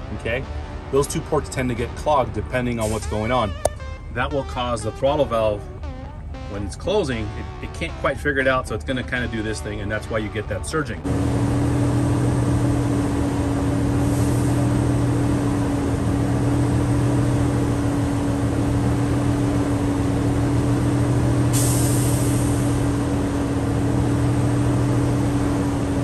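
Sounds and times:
diesel engine running: 0.0s - 26.0s
air hiss: 21.5s - 22.8s.

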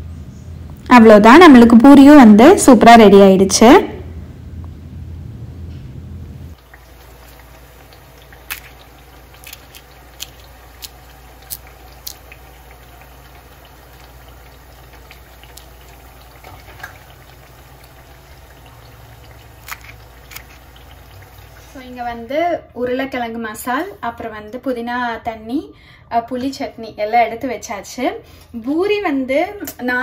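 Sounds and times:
deep-frying sizzle with pops: 6.5s - 24.6s.

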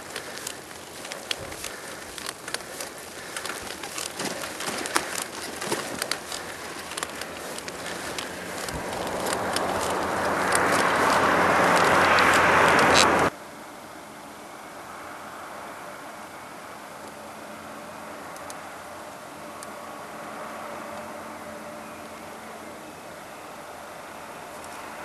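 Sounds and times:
crackling clicks: 0.0s - 13.3s, 18.3s - 18.6s
road and wind noise: 0.0s - 25.0s.

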